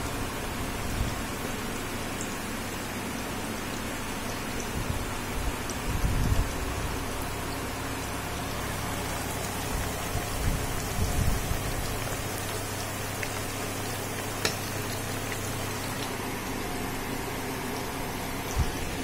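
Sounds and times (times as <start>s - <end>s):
food sizzling in hot oil: 0.2s - 19.0s.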